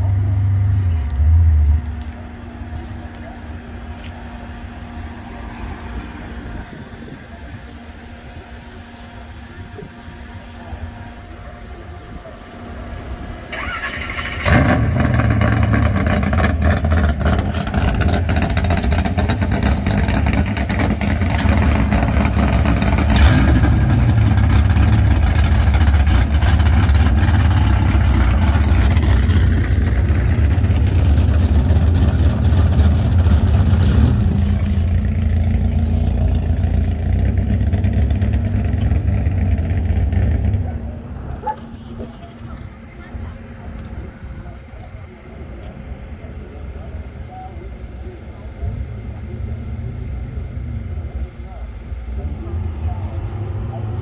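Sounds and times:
car engine starting and idling: 0:11.2 - 0:44.2.

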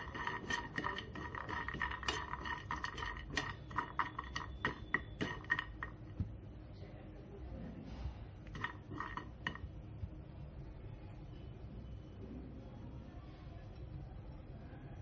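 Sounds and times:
metal spoon scraping frying pan: 0:00.0 - 0:05.9, 0:08.5 - 0:09.6
nuts frying in oil: 0:00.0 - 0:06.1, 0:08.5 - 0:09.9.

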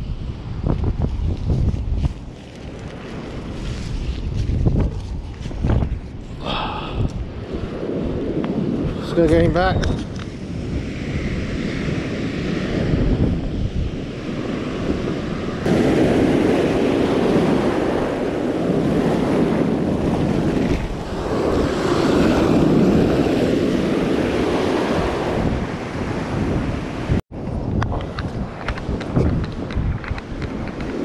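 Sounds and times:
wind buffeting microphone: 0:00.0 - 0:31.0
surf washing around legs: 0:14.4 - 0:27.1.

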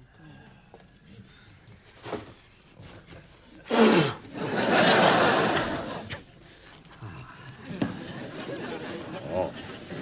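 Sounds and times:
studio audience laughter: 0:04.4 - 0:06.2, 0:07.8 - 0:10.0.

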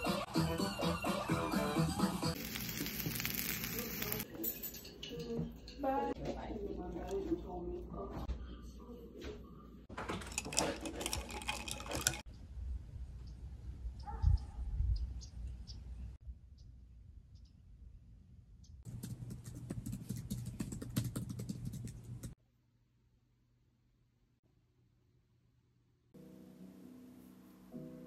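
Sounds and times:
ice clinking in a glass: 0:10.2 - 0:12.2.

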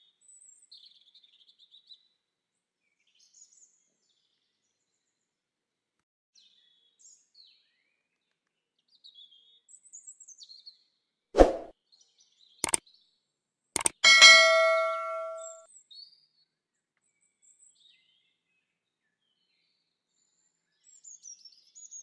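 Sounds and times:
sharp metallic clang: 0:13.8 - 0:15.6.

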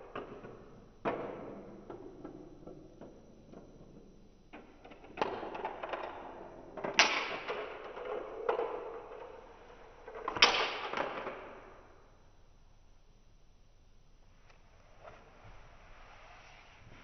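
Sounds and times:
balls clacking against track parts: 0:00.0 - 0:11.8
steel marbles rolling on plastic track: 0:04.6 - 0:11.3.

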